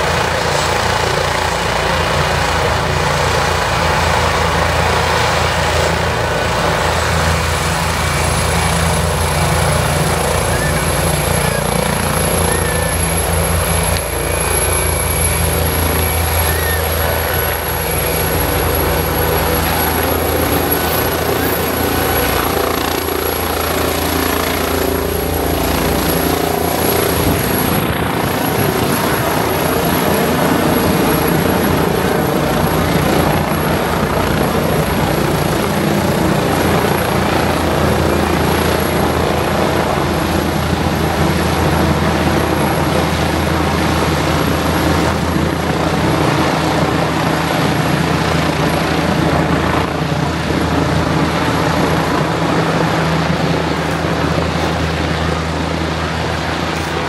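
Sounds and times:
helicopter rotors and engine: 0.0 - 57.0.

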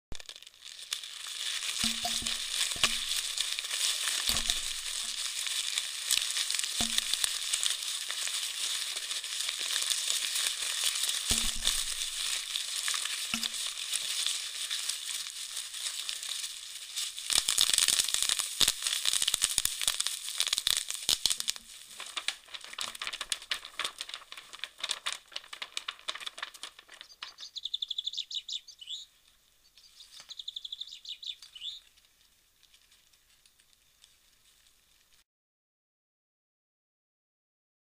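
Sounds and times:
dense crackling and crinkling: 0.1 - 35.2
bird chirps: 27.0 - 31.9.

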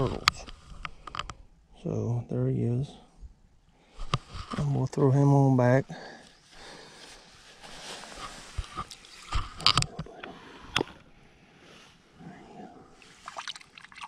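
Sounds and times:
sharp knocks and rustles: 4.0 - 4.8, 7.6 - 10.2.

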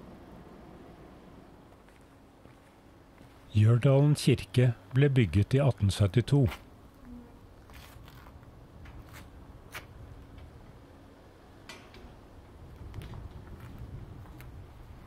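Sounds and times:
metal gate clicks and taps: 11.6 - 12.2.

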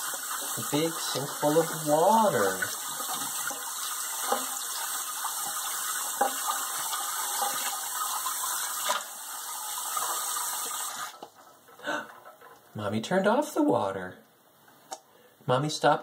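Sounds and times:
water splashes: 0.0 - 11.2.

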